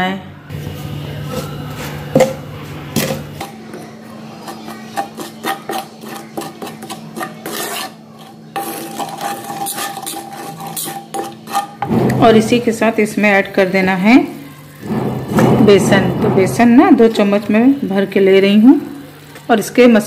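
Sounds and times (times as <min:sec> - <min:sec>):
metal spatula scraping a pan: 0:01.2 - 0:13.2, 0:14.7 - 0:17.6.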